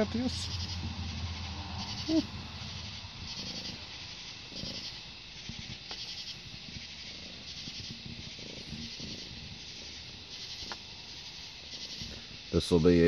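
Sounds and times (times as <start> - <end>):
night insects chirping: 0.0 - 13.0
steady outdoor hiss: 0.0 - 13.0.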